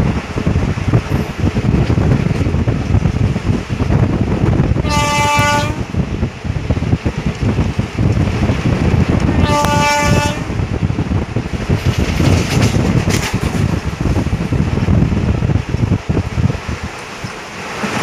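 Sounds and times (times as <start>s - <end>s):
train rumble and rail clatter: 0.0s - 18.0s
train horn: 4.8s - 5.9s, 9.4s - 10.5s.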